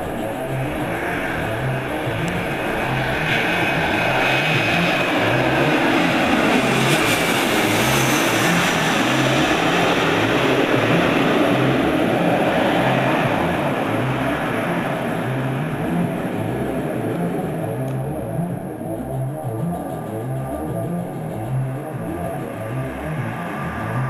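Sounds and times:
jet flying low overhead: 0.0s - 18.0s.

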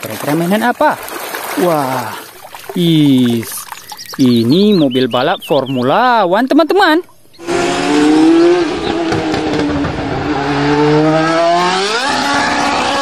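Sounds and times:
race car engine at high revs: 7.4s - 13.0s.

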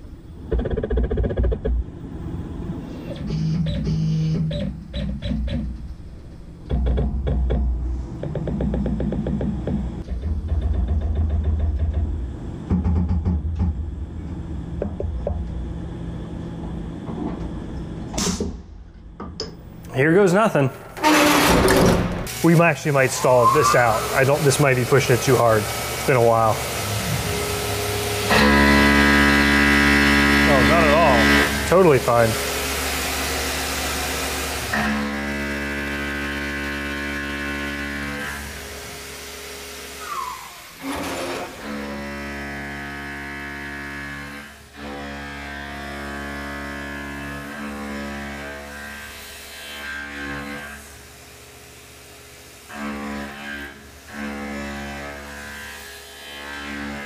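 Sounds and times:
milling machine humming: 19.1s - 49.2s
cutting hiss: 22.2s - 29.2s
falling tone: 23.0s - 24.7s.

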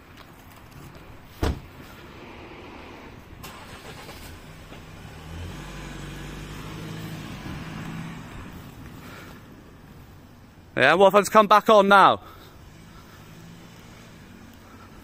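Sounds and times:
car engine humming: 1.7s - 10.8s, 12.2s - 15.0s.

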